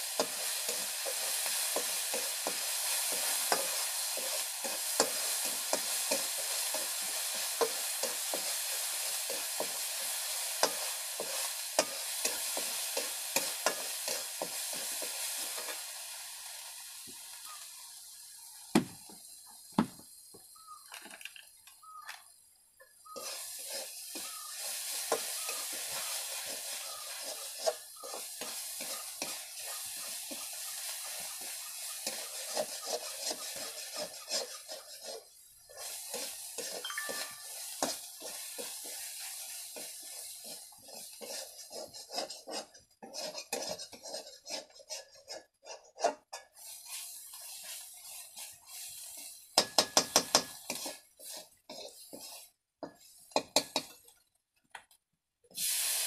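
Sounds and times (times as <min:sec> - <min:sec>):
metal spatula scraping pan: 0:00.0 - 0:15.8, 0:23.1 - 0:54.1
curry sizzling in wok: 0:00.0 - 0:20.9, 0:21.8 - 0:54.4, 0:55.5 - 0:56.0
spatula knocking on pan: 0:49.6 - 0:50.6.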